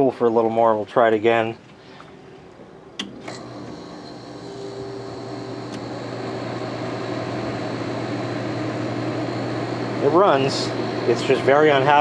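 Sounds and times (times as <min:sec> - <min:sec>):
air conditioner compressor humming: 0:00.0 - 0:12.0
fans spinning up: 0:01.6 - 0:12.0
air conditioner switch clicks: 0:03.0 - 0:03.8, 0:05.7 - 0:05.9.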